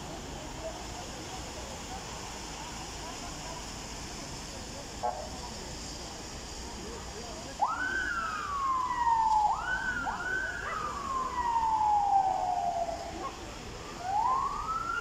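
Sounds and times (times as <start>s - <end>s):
emergency vehicle siren wailing: 7.6s - 15.0s.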